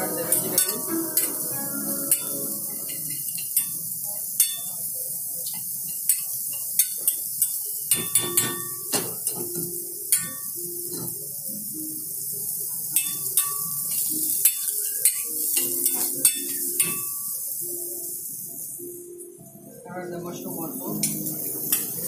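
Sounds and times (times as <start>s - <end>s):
metal pan clanking: 0.0s - 3.8s, 21.0s - 22.0s
vegetables sauteing hiss: 0.0s - 19.2s, 20.4s - 22.0s.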